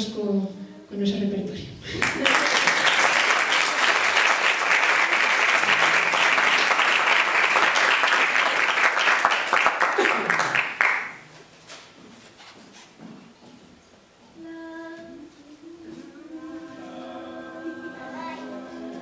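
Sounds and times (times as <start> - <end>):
crowd applause: 1.9 - 11.2
scattered claps: 2.0 - 11.2.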